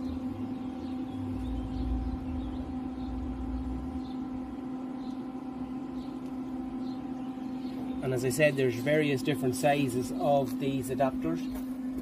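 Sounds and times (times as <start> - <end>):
induction heater humming: 0.0 - 12.0.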